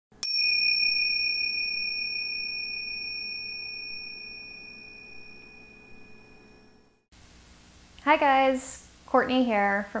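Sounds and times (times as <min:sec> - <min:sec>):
small bell ringing: 0:00.2 - 0:07.0.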